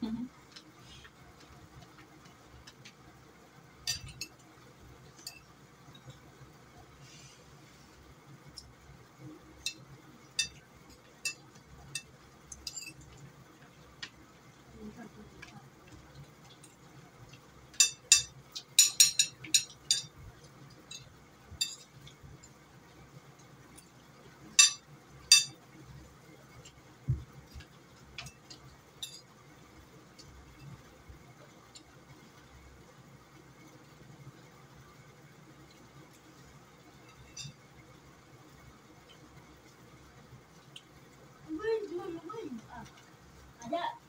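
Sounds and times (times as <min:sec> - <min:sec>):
spoons clinking on plates: 0:03.8 - 0:04.4, 0:05.1 - 0:06.1, 0:09.6 - 0:13.2, 0:17.8 - 0:20.2, 0:20.8 - 0:22.6, 0:24.5 - 0:25.6, 0:28.2 - 0:29.3, 0:37.0 - 0:37.6.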